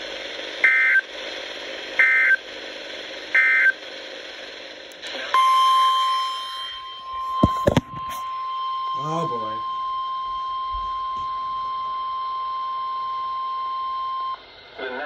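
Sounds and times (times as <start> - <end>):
radio hiss: 5.0 - 5.4, 14.8 - 15.0
steady high alert tone: 5.4 - 9.8.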